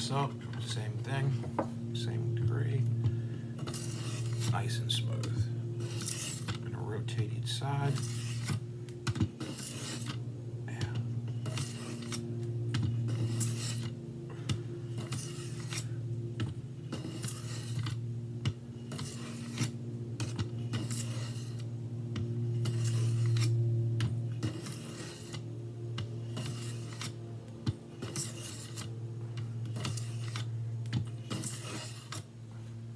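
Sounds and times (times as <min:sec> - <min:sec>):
steady low hum: 0:00.0 - 0:32.9
knife scraping on sharpening plate: 0:03.6 - 0:04.5, 0:05.8 - 0:06.6, 0:07.9 - 0:08.6, 0:09.4 - 0:10.2, 0:13.1 - 0:13.9, 0:15.0 - 0:15.9, 0:16.9 - 0:18.0, 0:18.9 - 0:21.6, 0:22.6 - 0:23.5, 0:24.4 - 0:25.4, 0:26.3 - 0:27.2, 0:28.0 - 0:28.9, 0:29.7 - 0:30.5, 0:31.3 - 0:32.2.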